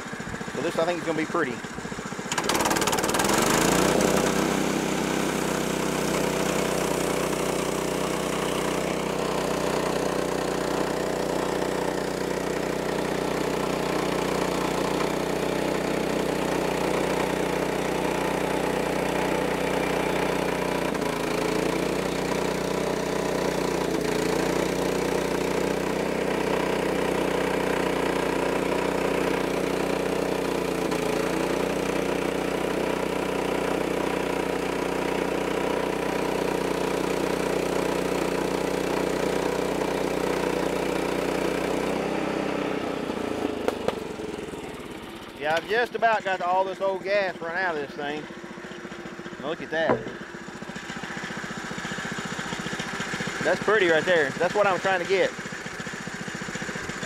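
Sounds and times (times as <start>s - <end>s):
sawmill gasoline engine running: 0.0s - 57.0s.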